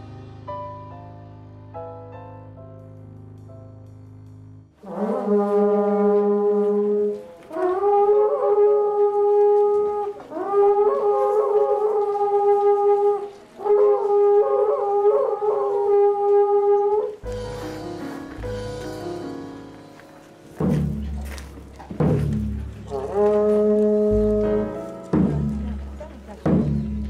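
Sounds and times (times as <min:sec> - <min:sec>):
soft keyboard music: 0:00.0 - 0:04.8, 0:17.0 - 0:27.0
conch-shell trumpet blasts: 0:04.8 - 0:19.1, 0:22.8 - 0:24.9.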